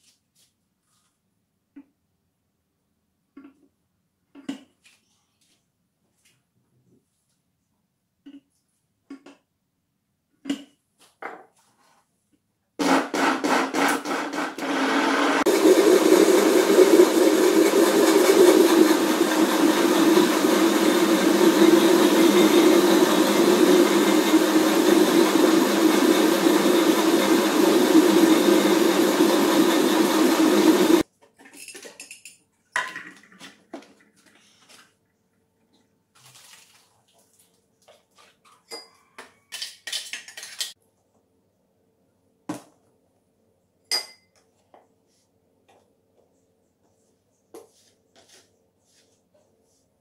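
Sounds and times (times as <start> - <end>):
blender running: 12.8 - 31.0.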